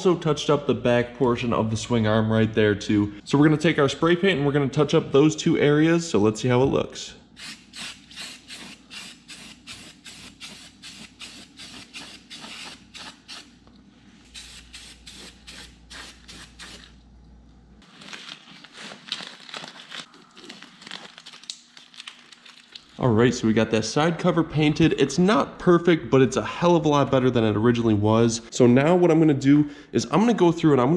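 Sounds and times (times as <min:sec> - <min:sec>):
spray paint can hissing: 0:07.4 - 0:13.5, 0:14.3 - 0:16.9.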